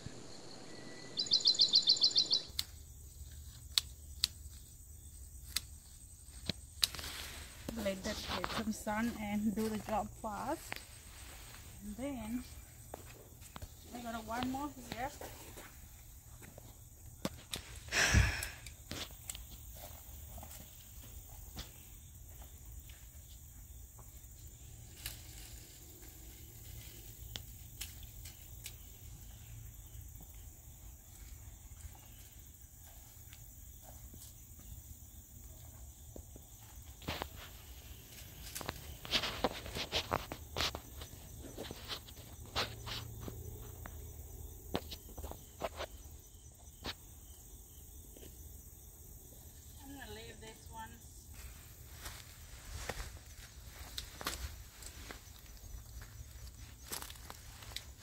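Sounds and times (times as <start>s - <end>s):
insects chirping: 0.0s - 58.0s
rustling of garden plants: 2.1s - 47.4s, 49.3s - 58.0s
crackles and snaps: 2.5s - 4.7s, 5.3s - 8.6s.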